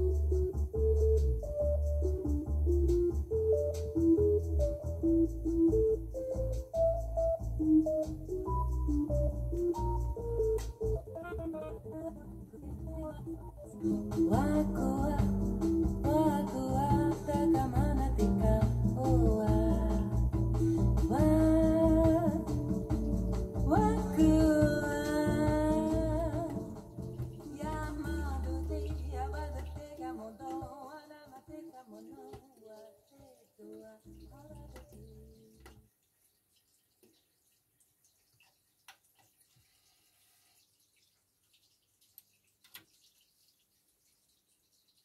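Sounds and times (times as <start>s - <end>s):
backing music: 0.0s - 30.8s
person singing long notes: 11.0s - 22.7s, 23.7s - 26.9s, 27.5s - 32.8s.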